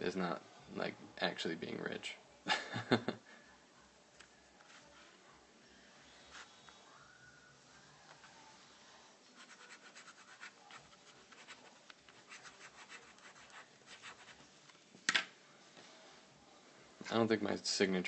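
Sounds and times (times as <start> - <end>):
pen scratching on paper: 6.0 - 6.8, 9.4 - 14.4.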